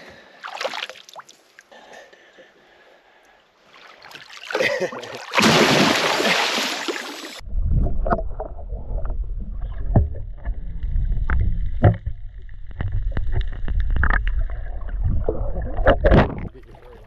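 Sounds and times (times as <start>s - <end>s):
low rumble: 7.4s - 16.7s.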